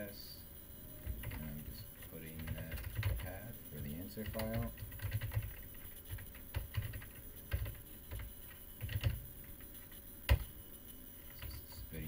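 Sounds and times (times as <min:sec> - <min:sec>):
typing on computer keyboard: 0:01.0 - 0:10.6.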